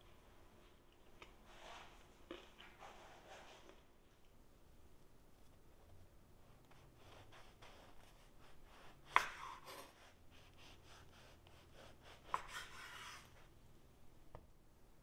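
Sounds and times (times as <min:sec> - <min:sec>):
knife slicing crusty bread: 0:06.8 - 0:13.5.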